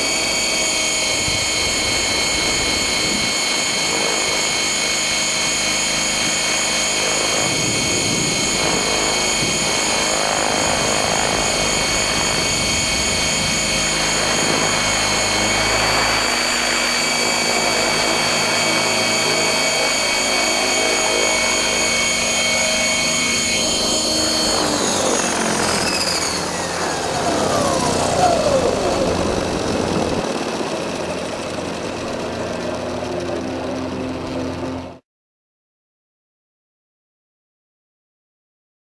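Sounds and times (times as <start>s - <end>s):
rotor wash: 0.0s - 30.2s
electric motor whine: 0.0s - 34.9s.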